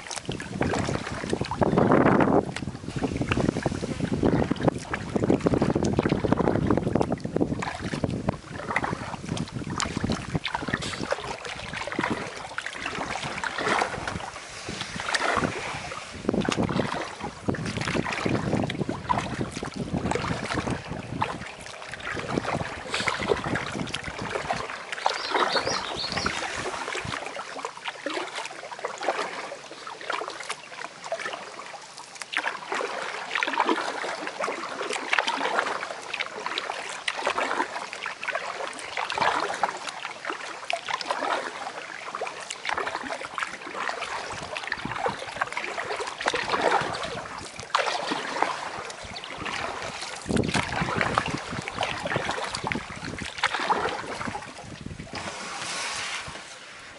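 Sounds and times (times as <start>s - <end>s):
paddle splashing and dripping: 0.0s - 56.9s
wind buffeting microphone: 0.1s - 27.3s, 44.2s - 56.5s.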